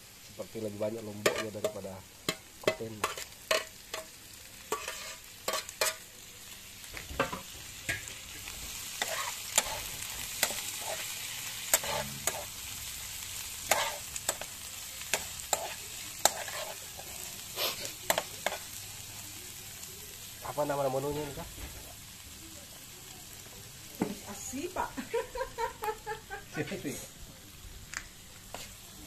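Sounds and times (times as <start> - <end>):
food sizzling in oil: 0.0 - 29.0
spatula scraping a pan: 1.2 - 6.0, 7.2 - 12.6, 13.6 - 14.5, 15.1 - 18.7, 28.5 - 28.8.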